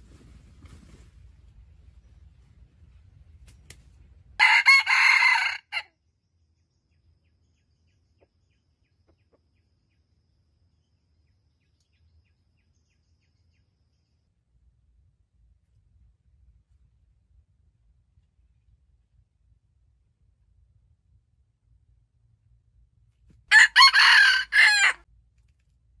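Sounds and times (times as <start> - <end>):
rooster crowing: 4.4 - 5.9, 23.5 - 25.0.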